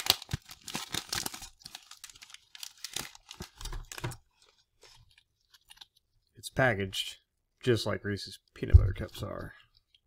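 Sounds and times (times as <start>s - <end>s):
plastic wrapper crinkling: 0.0s - 6.3s.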